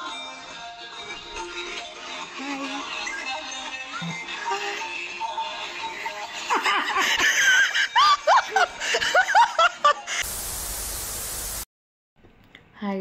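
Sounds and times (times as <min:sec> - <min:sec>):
high-pitched laughter: 0:06.4 - 0:10.2
static hiss: 0:10.2 - 0:11.7.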